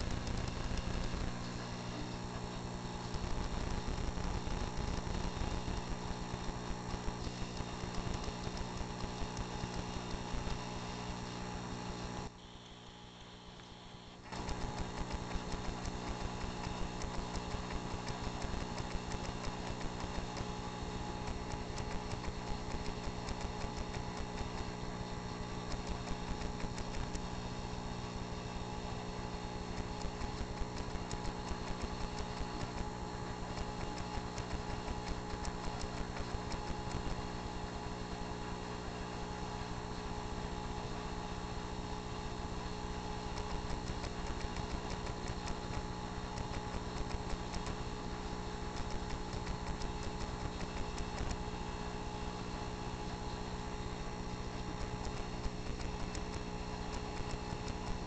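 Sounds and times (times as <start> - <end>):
aquarium pump humming: 0.0 - 58.0.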